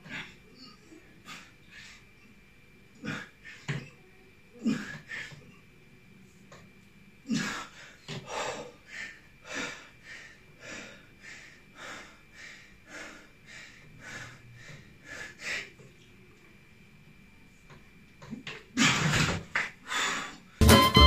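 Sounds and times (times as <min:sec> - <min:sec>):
man breathing hard: 0:07.4 - 0:15.7.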